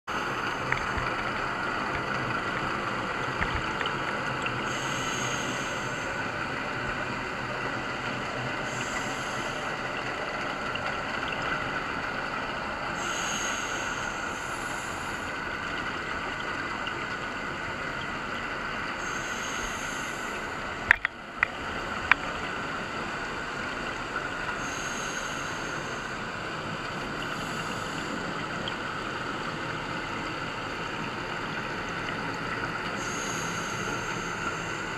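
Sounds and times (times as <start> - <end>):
underwater hiss: 4.6 - 10.8, 12.9 - 17.4, 18.8 - 21.0, 21.7 - 31.4, 32.3 - 34.9.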